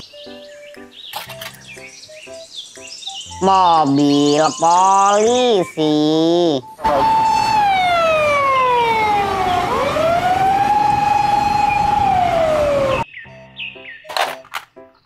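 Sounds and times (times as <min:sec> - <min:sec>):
police car siren wailing: 0:06.8 - 0:13.1.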